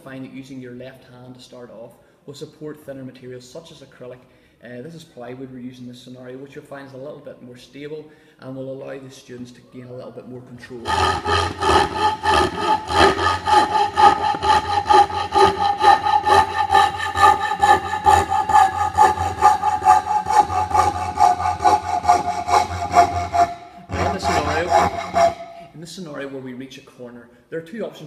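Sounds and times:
coping saw cutting plywood: 10.6s - 25.7s.

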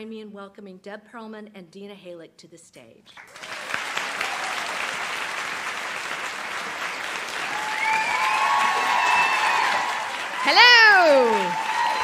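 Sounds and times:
audience applauding: 3.2s - 12.0s
crowd whooping: 4.0s - 4.9s, 7.3s - 12.0s.

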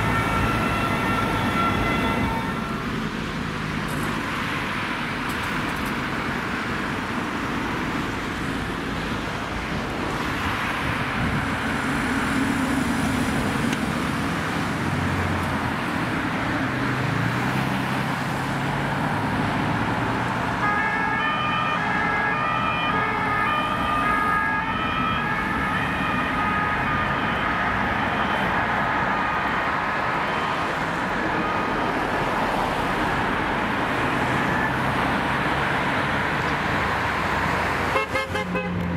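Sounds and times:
two-tone ambulance siren: 0.0s - 2.9s, 20.6s - 36.4s
road traffic engines: 0.0s - 38.9s.

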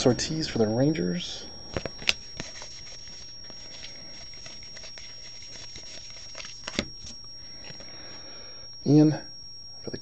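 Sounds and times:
cards rustling and sliding: 1.7s - 7.9s
card taps: 6.4s - 6.9s.

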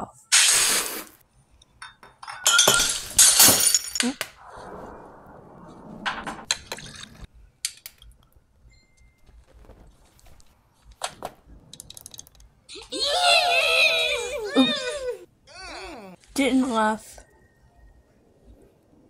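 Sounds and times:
kitchenware clinking: 1.7s - 4.2s.

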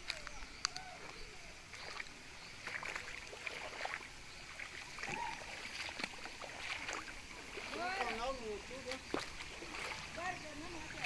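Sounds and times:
stream running over rocks: 0.0s - 11.0s
water ticks and splashes: 0.0s - 11.0s.

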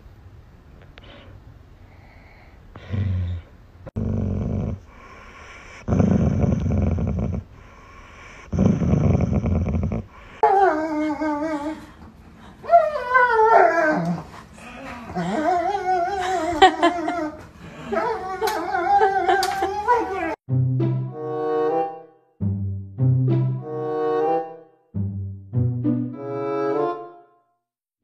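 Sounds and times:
dog growling: 2.8s - 7.5s, 8.3s - 11.8s.

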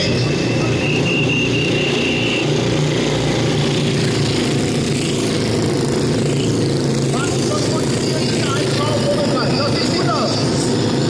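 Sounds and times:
motorcycle engines droning: 0.0s - 11.0s.

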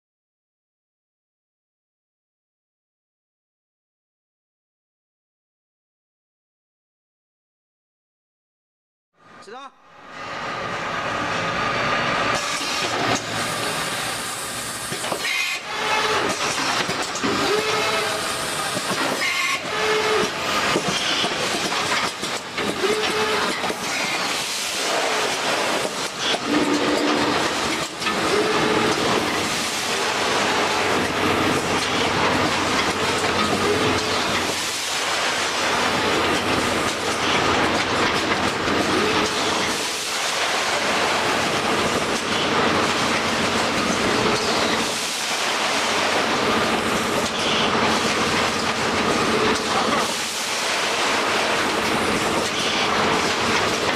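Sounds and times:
packing machine clatter: 14.9s - 17.7s, 18.6s - 53.9s.

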